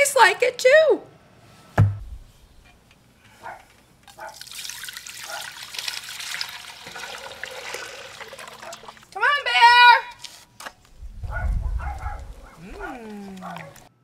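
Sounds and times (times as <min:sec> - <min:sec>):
low thump: 0:01.8 - 0:02.4
liquid pouring and splashing: 0:04.3 - 0:09.2.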